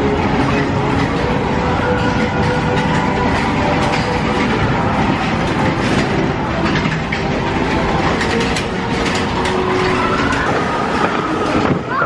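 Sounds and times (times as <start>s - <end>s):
roller coaster rattling on track: 0.0s - 12.0s.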